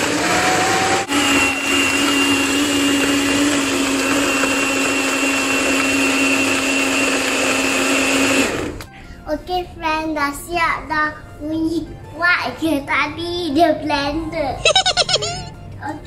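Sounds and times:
electric blender running: 0.0 - 8.9.

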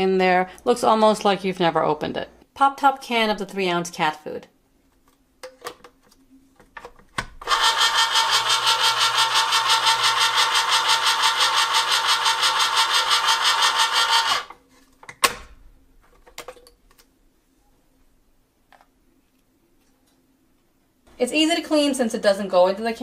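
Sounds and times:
electric can opener running: 7.4 - 14.6.

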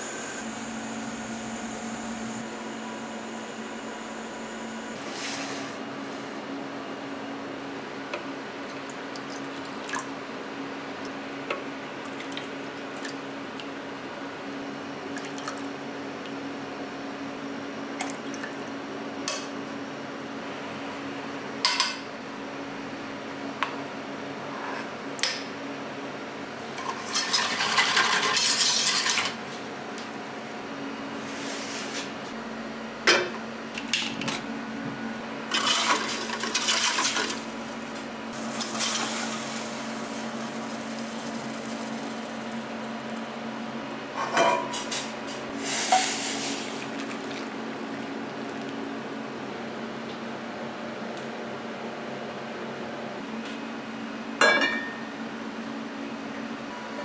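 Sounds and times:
steady low hum: 0.0 - 5.1.

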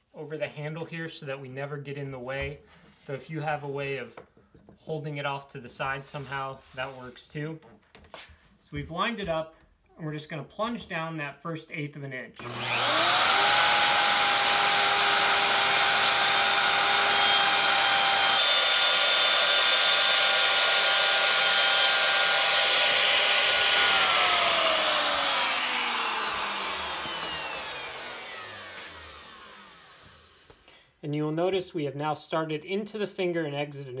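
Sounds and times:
router motor whining: 12.4 - 30.6.

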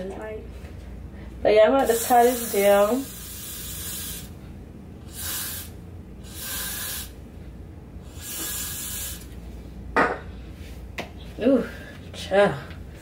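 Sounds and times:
hairspray can spraying: 1.8 - 4.4, 5.1 - 7.1, 8.1 - 9.4.

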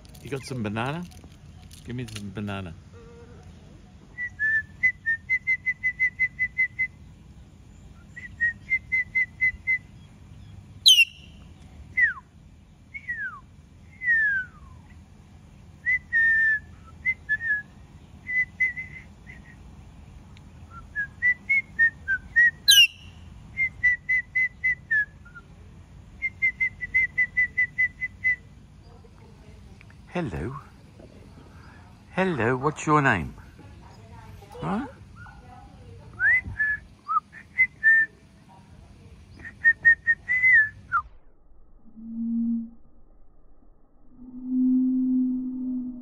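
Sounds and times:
parakeet shrill calls: 10.8 - 11.4, 22.7 - 23.2
parakeet whistling: 10.8 - 11.4, 22.4 - 24.7.

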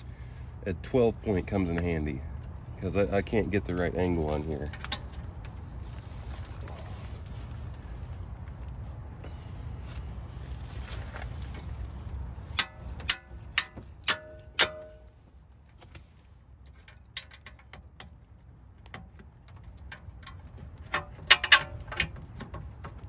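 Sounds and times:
hammer striking wrench: 12.6 - 15.0
sharp metal clanks: 12.6 - 15.1, 21.0 - 22.1.

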